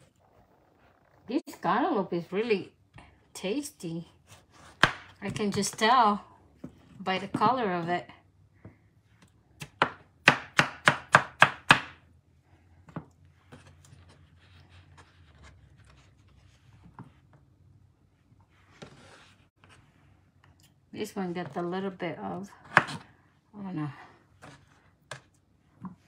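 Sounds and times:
knife chopping on cutting board: 4.6 - 5.1, 9.6 - 12.0, 22.6 - 23.0.

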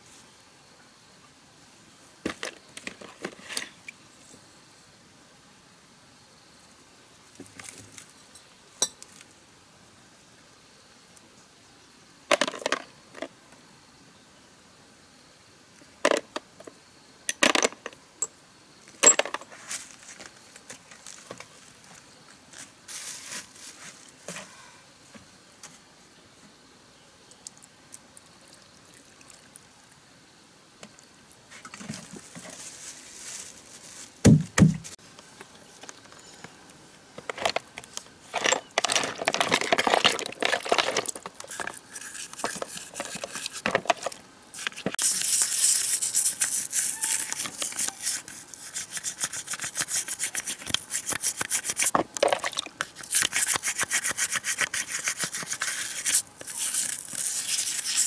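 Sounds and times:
sharp knocks: 34.2 - 34.9
metal parts washed in liquid: 38.4 - 41.7.

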